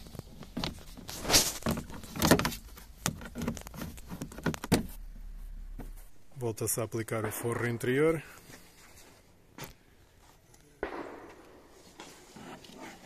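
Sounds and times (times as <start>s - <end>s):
scraping rustles: 0.0s - 6.2s, 11.8s - 13.0s.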